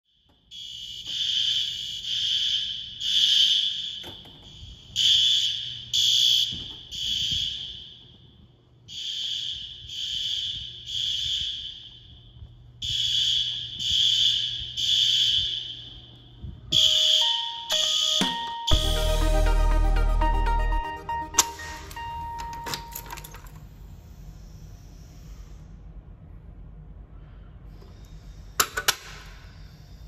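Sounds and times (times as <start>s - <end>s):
fire alarm horn blasts: 0.4s - 23.5s.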